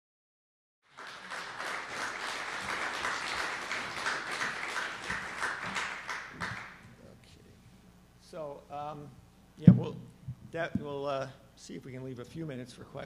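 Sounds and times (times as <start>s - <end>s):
audience applauding: 0.9s - 6.9s.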